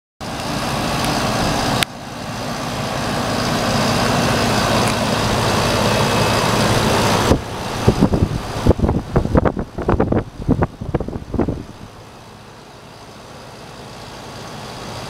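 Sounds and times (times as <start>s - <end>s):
condenser fan whoosh: 0.2s - 12.5s.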